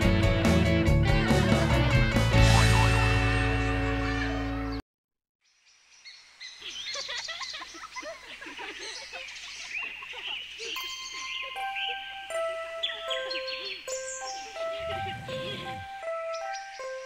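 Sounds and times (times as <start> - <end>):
song music: 0.0 - 4.8, 10.8 - 17.0
small birds chirping: 5.4 - 17.0
steady musical notes: 10.8 - 17.0.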